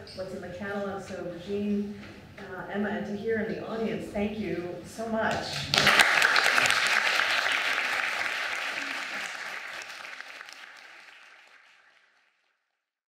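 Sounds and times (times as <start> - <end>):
audience applauding: 5.6 - 12.4.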